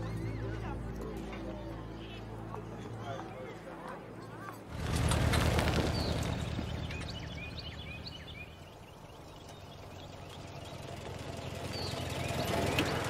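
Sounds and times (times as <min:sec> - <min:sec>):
songbirds chirping: 0:00.0 - 0:13.0
car engine puttering: 0:04.7 - 0:13.0.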